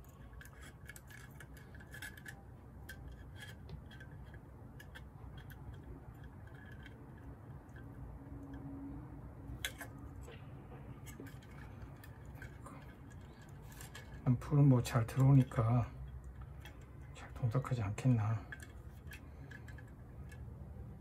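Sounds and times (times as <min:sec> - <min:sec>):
plastic parts clicking: 0:00.0 - 0:07.9
low steady hum: 0:00.0 - 0:21.0.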